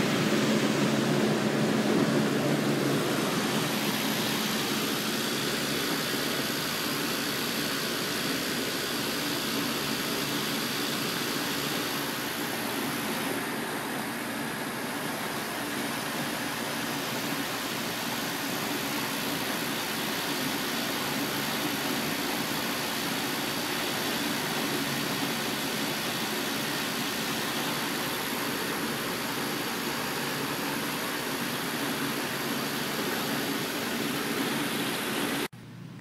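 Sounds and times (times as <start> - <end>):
low even hum: 0.0 - 6.8
condenser fans rushing air: 0.0 - 36.0.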